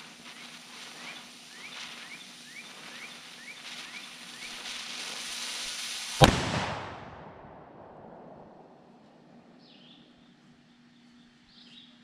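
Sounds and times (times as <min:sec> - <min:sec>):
fuse hissing: 0:00.0 - 0:06.3
firecracker bang: 0:06.0 - 0:09.5
bird chirping: 0:09.6 - 0:12.0.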